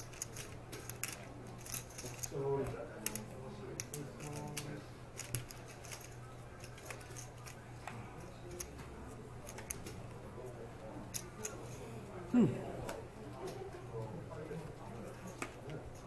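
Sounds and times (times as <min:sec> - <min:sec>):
poker chips clicking: 0:00.0 - 0:02.4, 0:03.8 - 0:07.6.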